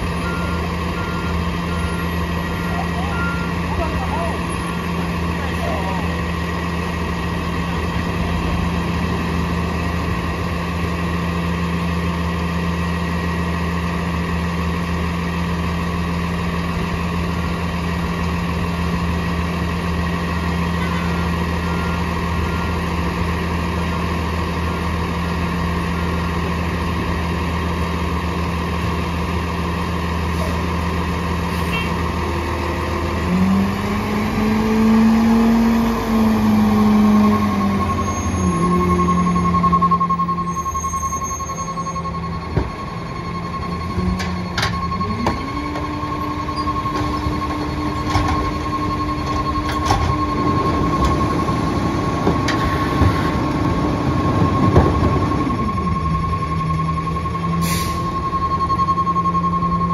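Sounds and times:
truck diesel engine idling: 0.0 - 59.9
truck engine revving: 18.0 - 41.2.

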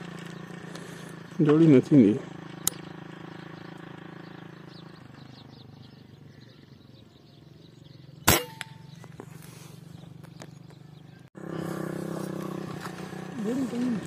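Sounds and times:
air gun shot: 8.3 - 8.8.

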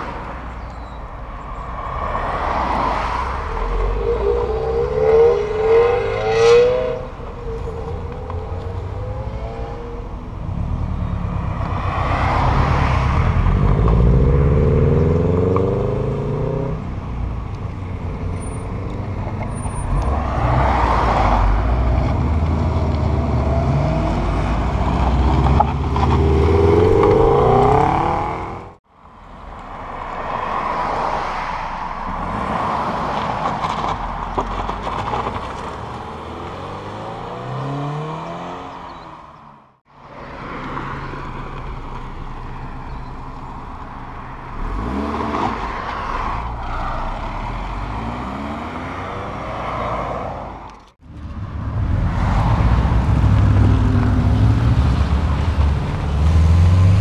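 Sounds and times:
cars accelerating with loud exhaust: 1.6 - 28.8, 41.9 - 57.0.

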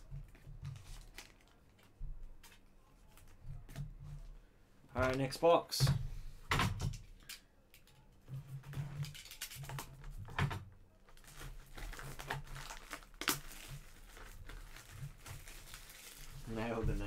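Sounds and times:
plastic shrink-wrap crinkling and tearing: 0.6 - 3.4, 11.0 - 17.0.

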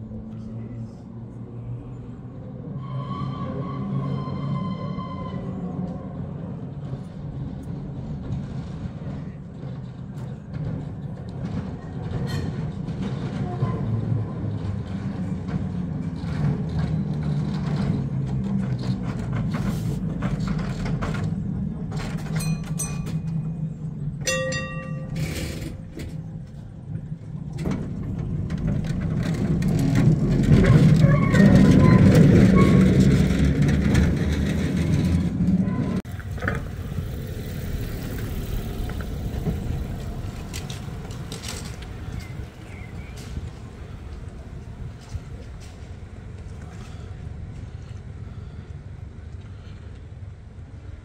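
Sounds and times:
tram rumbling on rails: 0.0 - 51.0
tram clicks: 5.8 - 51.0
brief ringing tones: 24.3 - 25.7.

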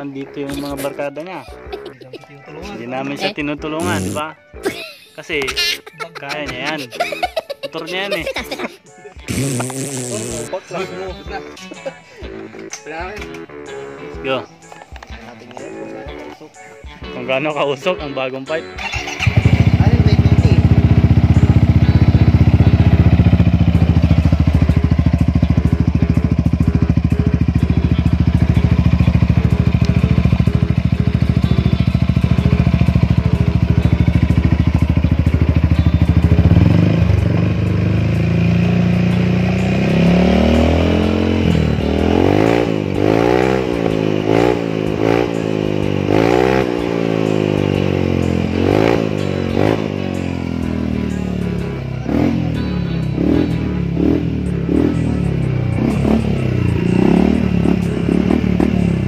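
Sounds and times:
scooter engine revving: 9.3 - 10.5, 18.8 - 59.0.

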